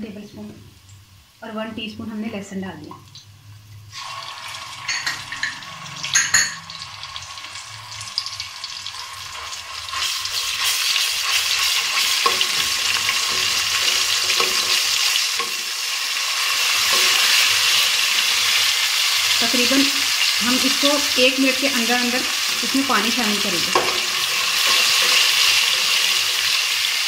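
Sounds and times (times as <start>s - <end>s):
onions sizzling in hot oil: 0.0s - 27.0s
metal spoon stirring in pot: 9.8s - 15.8s, 16.6s - 18.2s, 23.7s - 26.7s.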